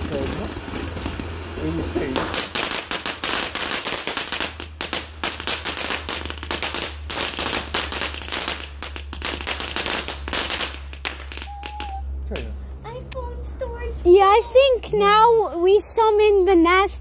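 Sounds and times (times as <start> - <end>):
firework fountain crackling: 0.0 - 12.5.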